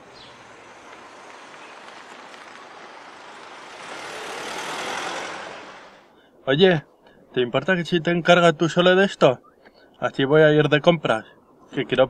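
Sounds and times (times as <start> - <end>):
car passing close by: 0.0 - 6.2
street traffic noise: 0.0 - 7.0.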